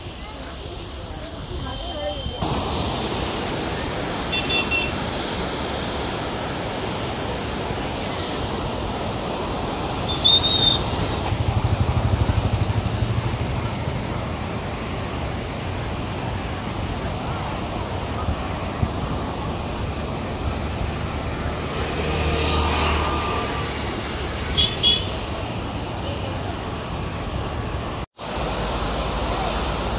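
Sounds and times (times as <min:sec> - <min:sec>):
steady rushing noise: 0:02.4 - 0:24.6.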